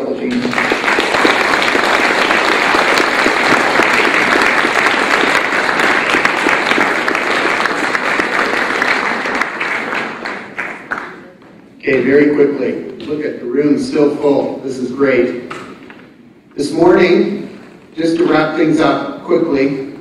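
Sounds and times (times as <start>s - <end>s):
audience applauding: 0.2s - 11.4s.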